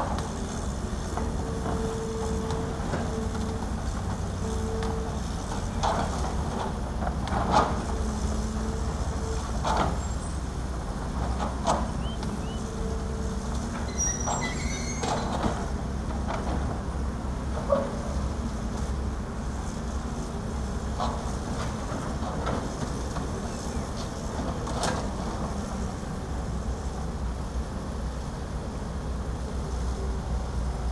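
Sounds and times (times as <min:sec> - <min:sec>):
heavy machinery engine drone: 0:00.0 - 0:30.9.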